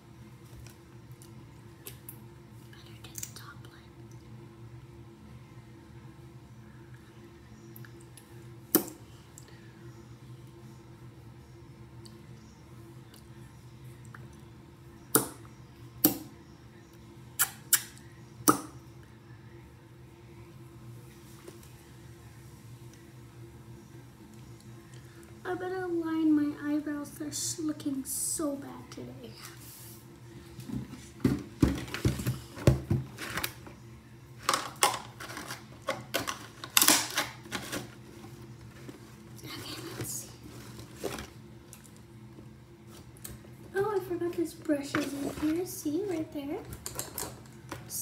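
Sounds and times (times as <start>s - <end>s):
lip smacks: 17.4s - 18.6s.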